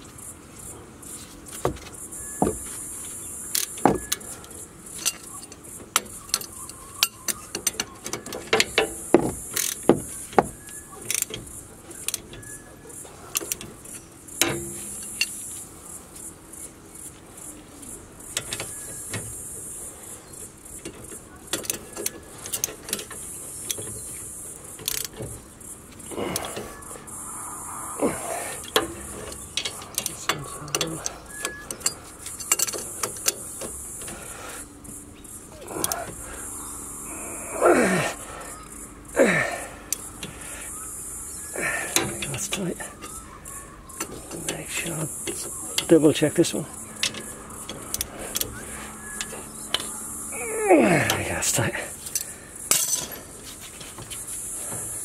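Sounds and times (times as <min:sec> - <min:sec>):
socket ratchet clicking: 0:03.5 - 0:10.4, 0:24.8 - 0:25.3
hand tools clinking on metal: 0:03.6 - 0:15.5, 0:28.6 - 0:34.4, 0:41.6 - 0:55.0.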